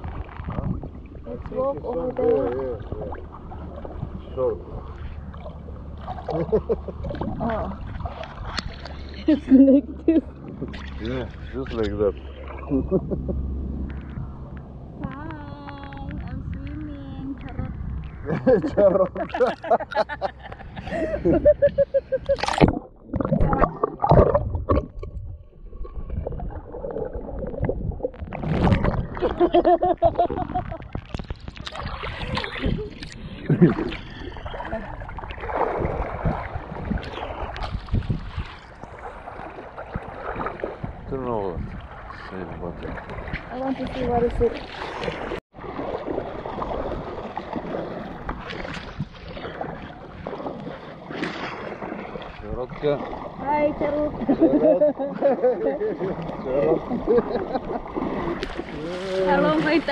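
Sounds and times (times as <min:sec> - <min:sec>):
wind buffeting microphone: 0:00.0 - 0:05.8, 0:13.5 - 0:19.2, 0:22.6 - 0:50.6
underwater rumbling and gurgling: 0:00.0 - 0:59.9
splash into water: 0:02.8 - 0:09.3, 0:22.2 - 0:25.2, 0:25.8 - 0:54.3, 0:56.0 - 0:59.9
small clicks underwater: 0:13.8 - 0:18.2, 0:30.6 - 0:33.2
muffled pitched pulses: 0:21.2 - 0:37.6.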